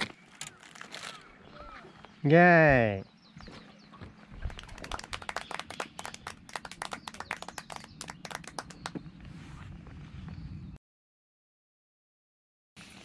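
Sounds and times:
sharp taps or claps: 4.4s - 9.0s.

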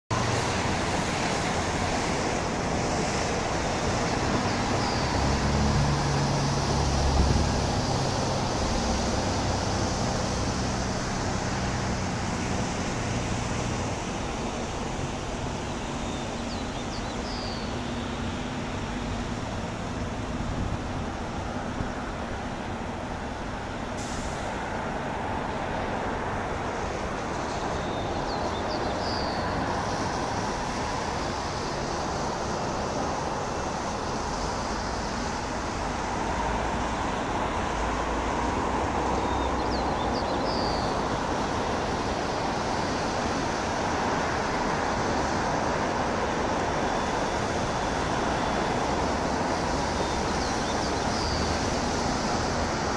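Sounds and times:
engine rumble: 0.1s - 52.9s.

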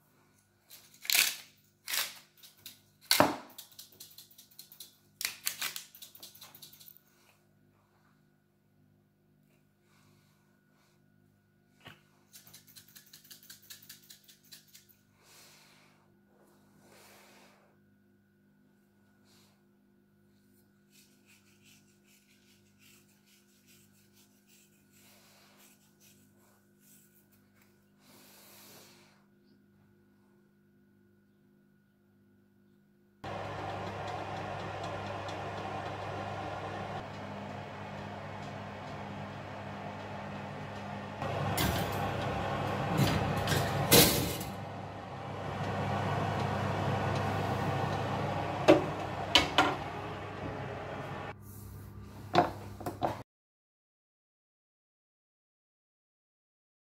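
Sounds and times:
fingers crumbling seasoning: 3.5s - 7.0s
steady low hum: 33.2s - 51.4s
oven door shutting: 33.3s - 51.3s.

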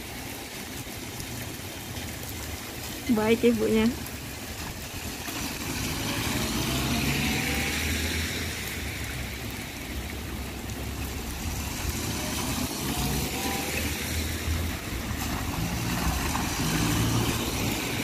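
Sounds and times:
tyres hissing on wet road: 0.0s - 18.0s
car engines passing: 3.8s - 18.0s.

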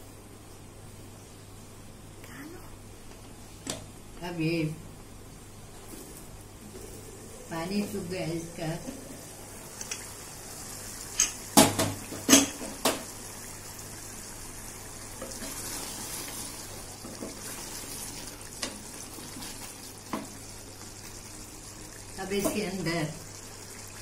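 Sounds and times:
curry bubbling and sizzling: 5.6s - 24.0s.

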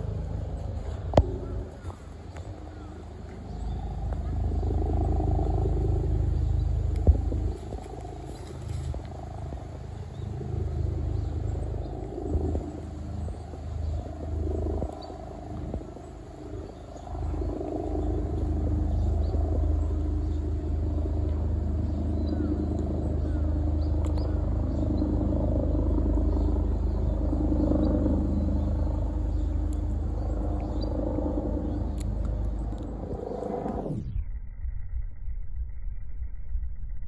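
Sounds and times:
low mechanical hum: 0.0s - 37.0s.

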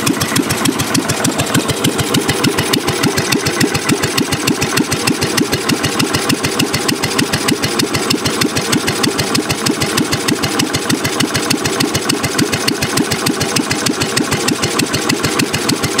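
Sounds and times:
single-cylinder engine idling: 0.0s - 16.0s.

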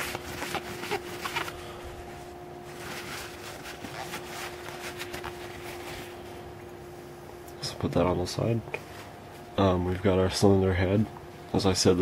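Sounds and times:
faint hum: 0.0s - 12.0s.

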